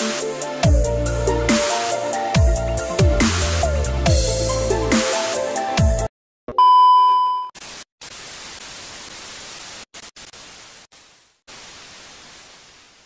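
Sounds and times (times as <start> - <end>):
test-tone beep: 6.5 - 7.5
tv static hiss: 7.6 - 13.0.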